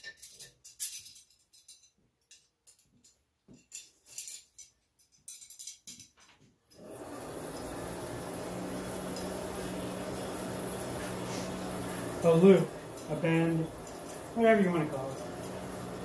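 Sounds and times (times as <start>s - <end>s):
metallic clinks and jingles: 0.0s - 6.3s
forge blower running: 6.8s - 16.0s.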